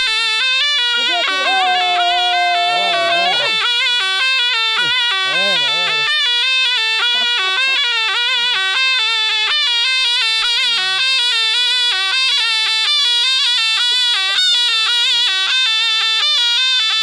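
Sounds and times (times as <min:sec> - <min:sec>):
folk melody on one instrument: 0:00.0 - 0:17.0.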